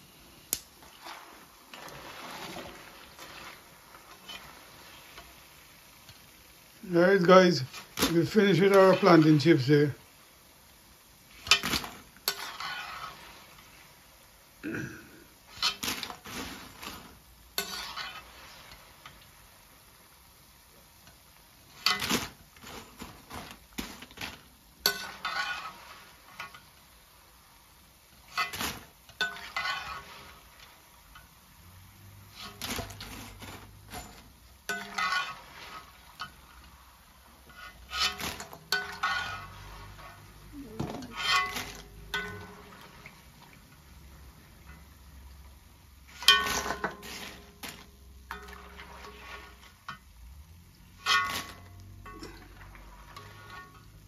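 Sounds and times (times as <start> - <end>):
metal spoon clinking on bowl: 42.2 - 42.6.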